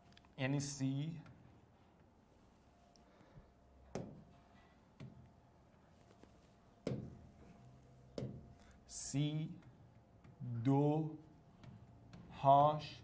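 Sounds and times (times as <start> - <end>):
pen tapping on a screen: 3.9 - 4.2, 6.8 - 7.2, 8.1 - 8.5.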